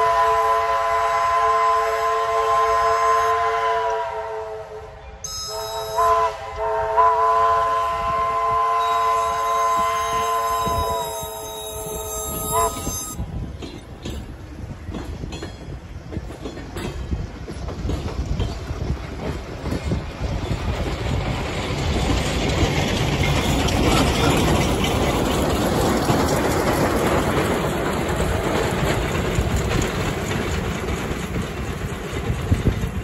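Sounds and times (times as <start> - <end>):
steam locomotive rolling noise: 0.0 - 33.0
train wheels clicking over rail joints: 8.8 - 33.0.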